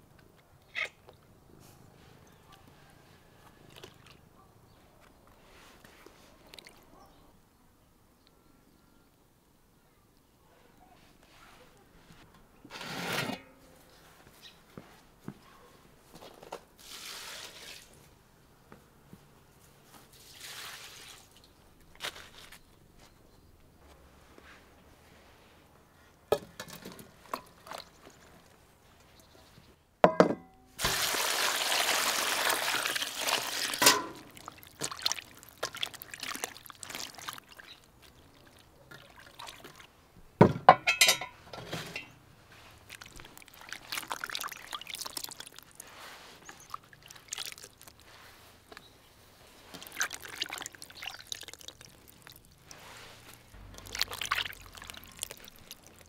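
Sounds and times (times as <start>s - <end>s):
liquid pouring: 30.8s - 39.9s, 42.8s - 48.0s, 49.7s - 56.0s.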